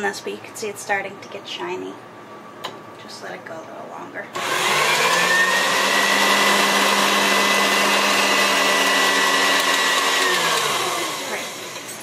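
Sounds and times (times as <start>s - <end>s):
stand mixer motor whining: 4.4s - 12.0s.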